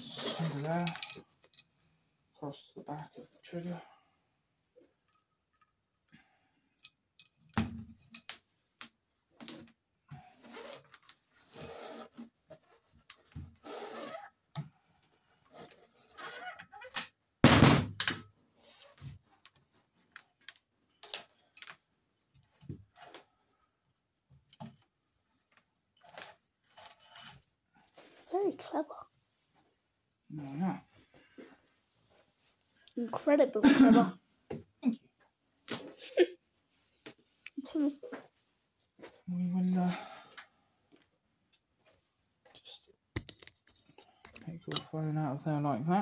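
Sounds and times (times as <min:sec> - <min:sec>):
rope rustling and sliding: 0:00.0 - 0:01.2, 0:09.4 - 0:16.8, 0:26.0 - 0:32.8.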